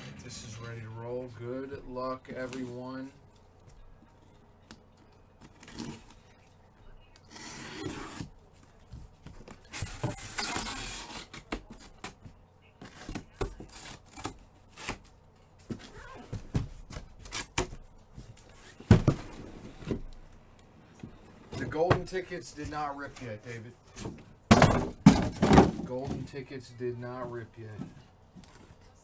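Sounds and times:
tape tearing: 5.4 - 6.2, 9.6 - 12.2, 12.8 - 16.0, 16.9 - 17.8.

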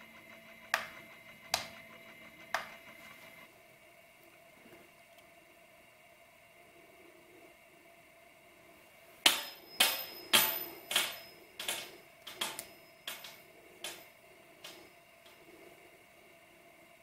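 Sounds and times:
metal spinning top clacking on glass: 9.3 - 14.9.

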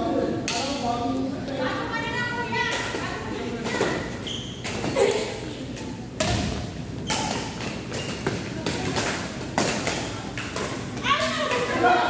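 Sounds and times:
badminton rackets hitting shuttlecock: 3.6 - 11.9.

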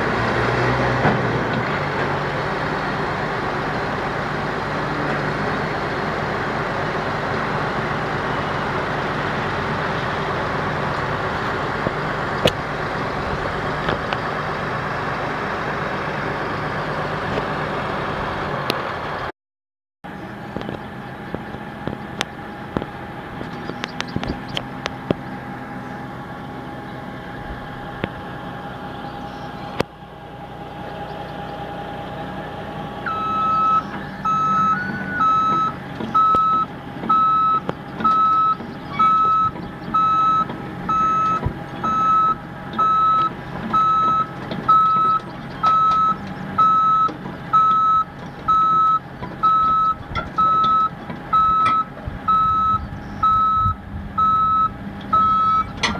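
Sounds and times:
heavy diesel engine running: 0.0 - 19.3, 20.0 - 55.9
backup alarm beeping: 33.1 - 55.8.

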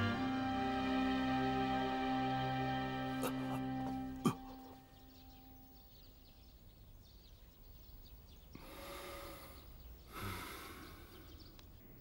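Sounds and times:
elderly man breathing heavily: 8.5 - 12.0.

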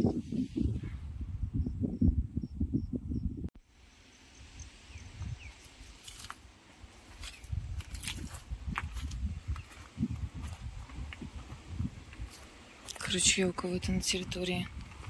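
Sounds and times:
insect chirping: 1.5 - 6.4.

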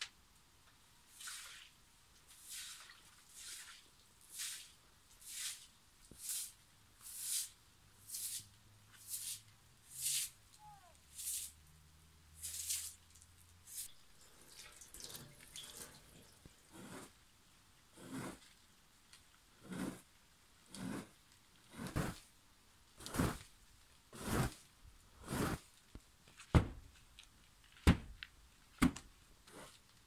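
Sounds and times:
broom sweeping wet tiled floor: 1.1 - 17.2, 17.9 - 18.6, 19.6 - 22.3, 23.0 - 26.5, 29.4 - 30.0
tap water splashing: 14.2 - 16.6.

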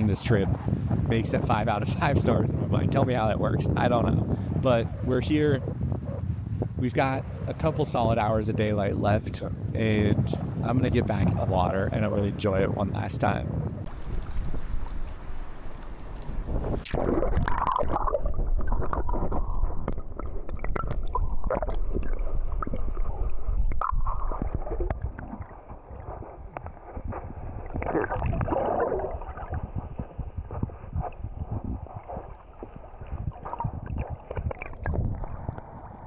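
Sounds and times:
muffled water sloshing and splashing: 13.6 - 36.0
steady low rumble: 13.7 - 36.0.

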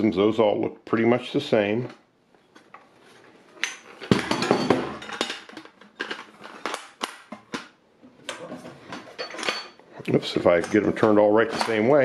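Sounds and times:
metal cans clacking and knocking: 3.6 - 9.8, 10.4 - 12.0.

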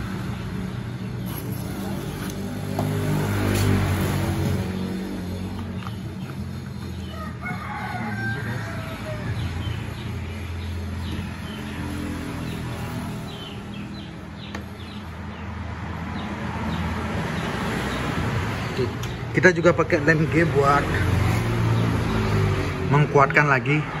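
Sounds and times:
small birds chirping: 0.0 - 23.2
rooster crowing: 7.0 - 9.6.

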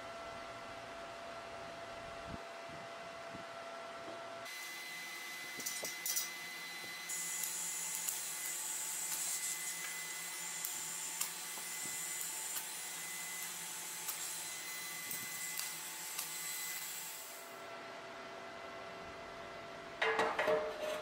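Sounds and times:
welding arc noise: 4.5 - 17.6.

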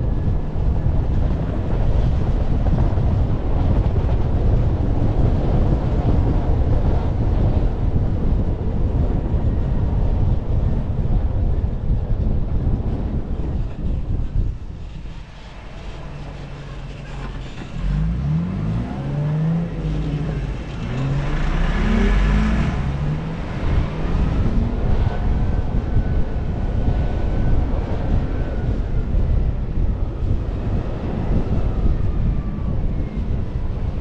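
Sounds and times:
low rumble: 0.0 - 34.0
engine accelerating: 14.4 - 34.0.

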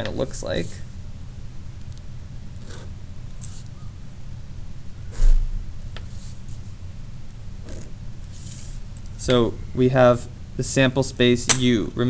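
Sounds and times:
marker pen scratching on paper: 2.6 - 3.7, 6.0 - 6.7, 7.6 - 8.8.

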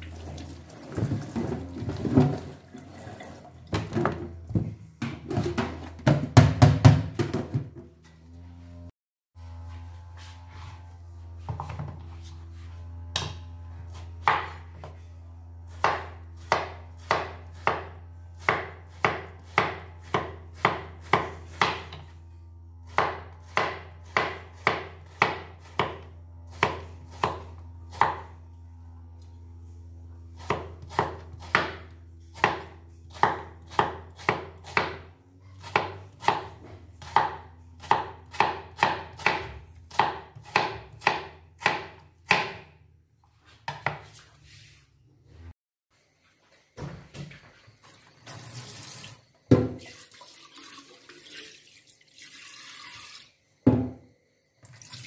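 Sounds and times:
cleaver chopping on cutting board: 13.1 - 14.9, 15.7 - 22.1, 22.9 - 26.0, 30.4 - 42.7, 43.6 - 44.2.

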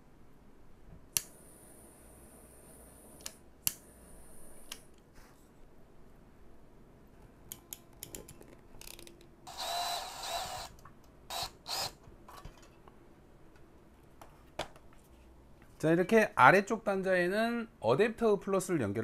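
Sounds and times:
light clicks handling wires: 7.5 - 9.3.

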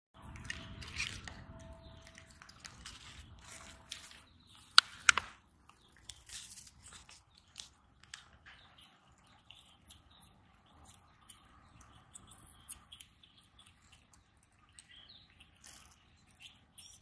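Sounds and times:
squirrel biting grape: 0.2 - 17.0
sharp clicks: 4.6 - 5.4.

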